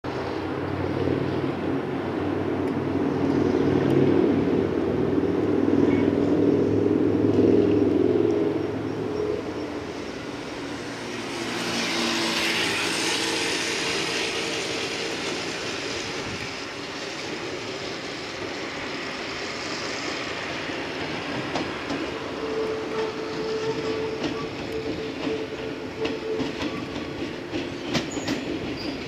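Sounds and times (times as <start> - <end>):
vehicle passing: 3.6 - 16.4.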